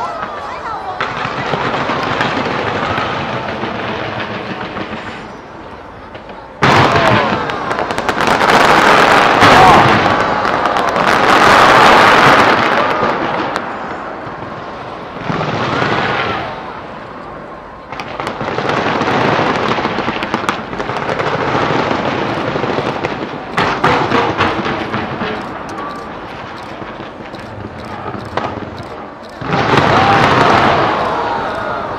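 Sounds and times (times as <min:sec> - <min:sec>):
fireworks crackling and popping: 0:00.0 - 0:31.9
fireworks sharp cracks: 0:00.0 - 0:31.9.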